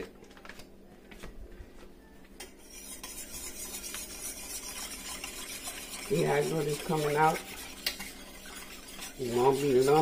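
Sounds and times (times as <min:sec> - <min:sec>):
metal whisk scratching a pan: 0:02.5 - 0:10.0.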